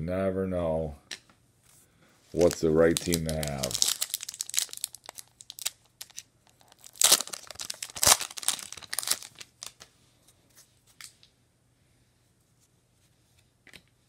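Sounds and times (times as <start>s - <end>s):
foil wrapper ripping: 2.4s - 9.8s
foil wrapper crinkling: 2.4s - 9.9s.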